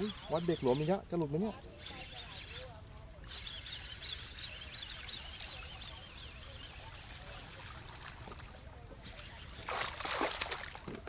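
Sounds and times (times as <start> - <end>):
birds twittering: 0.0 - 7.8
fish splashing at surface: 9.5 - 11.0.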